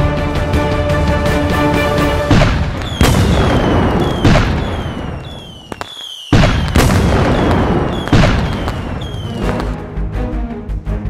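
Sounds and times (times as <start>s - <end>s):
fireworks bangs: 2.3s - 9.8s
fireworks crackling: 2.3s - 9.8s
falling whistle: 2.9s - 6.7s, 7.9s - 9.5s.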